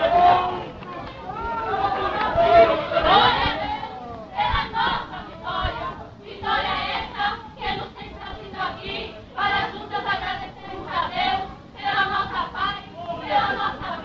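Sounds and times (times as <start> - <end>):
girls chanting in unison: 1.8 - 14.0.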